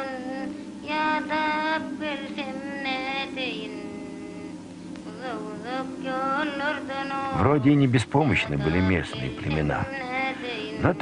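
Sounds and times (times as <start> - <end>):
solo voice singing ornamented phrases: 5.2 - 11.0.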